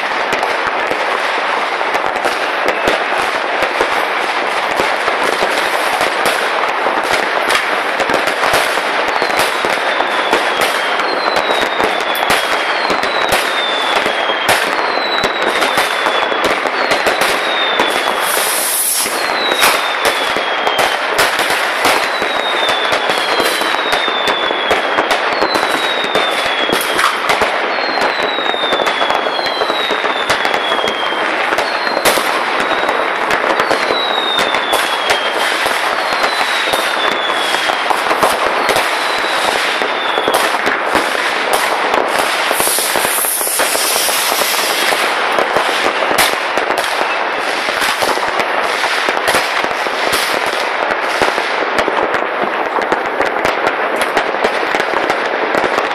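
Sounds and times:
fireworks banging and crackling: 0.0s - 55.9s
falling high whistle: 17.4s - 21.0s, 42.6s - 44.9s
brief high hiss: 18.2s - 19.3s, 42.5s - 44.8s.

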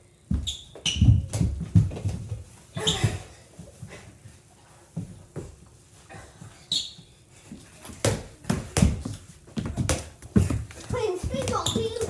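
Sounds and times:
shoe squeak: 0.4s - 1.3s, 6.6s - 7.2s, 11.4s - 12.0s
basketball bouncing on hardwood: 8.0s - 12.0s
feet thudding on hardwood floor: 8.0s - 12.0s.

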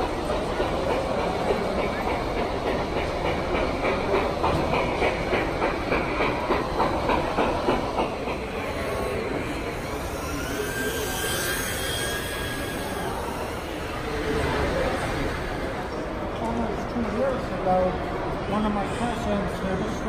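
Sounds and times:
model train rhythmic clatter: 0.0s - 20.0s
electric motor whine: 9.6s - 15.7s.

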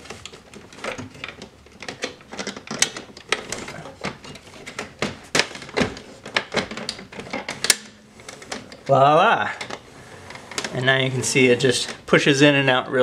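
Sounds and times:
plastic disc tray clicking and knocking: 0.4s - 8.9s.

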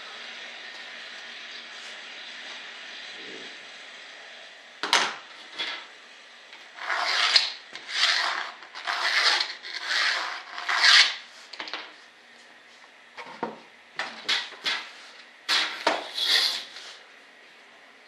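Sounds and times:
hand sanding strokes: 14.9s - 17.0s.

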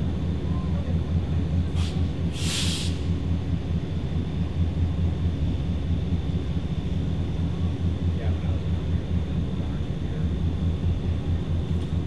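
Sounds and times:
diesel locomotive engine droning: 0.0s - 12.0s
air hiss burst: 1.8s - 3.1s.

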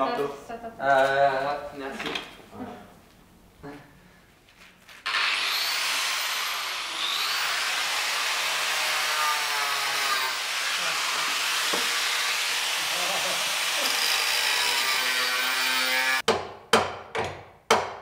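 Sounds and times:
angle grinder cutting metal: 5.1s - 16.2s.

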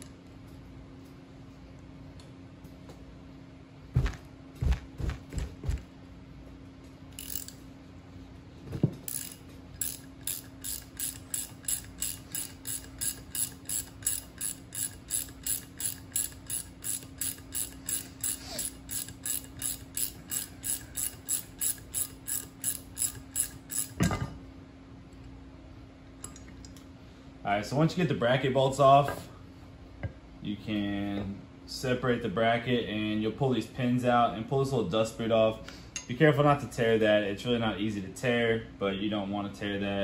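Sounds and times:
ratchet wrench clicking: 7.2s - 7.6s, 9.1s - 24.0s.

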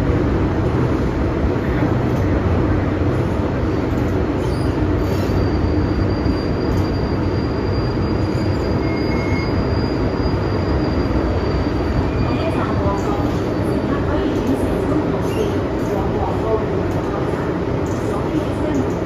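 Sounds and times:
train wheels rumbling on rail: 0.0s - 19.0s
brief tone: 4.4s - 12.6s.

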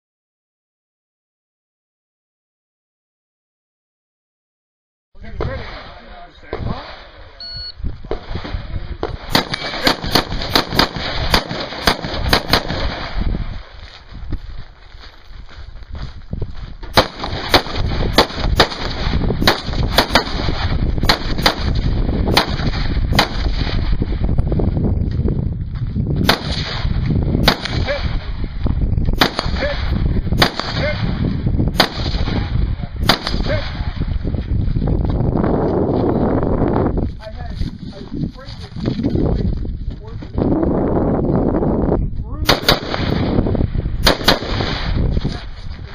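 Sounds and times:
rifle shots: 8.1s - 13.7s, 16.9s - 24.0s, 26.2s - 28.4s, 29.2s - 34.0s, 42.4s - 43.4s, 44.0s - 45.5s.

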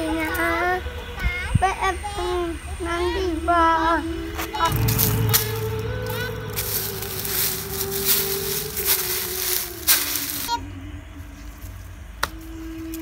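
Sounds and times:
held music note: 4.6s - 10.5s
footsteps crunching dry leaves: 4.7s - 10.6s.

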